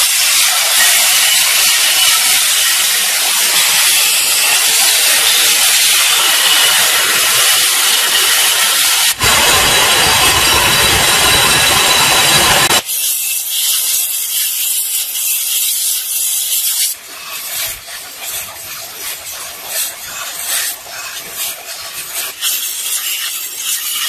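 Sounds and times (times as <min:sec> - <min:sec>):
belt grinder grinding steel: 0:00.0 - 0:24.0.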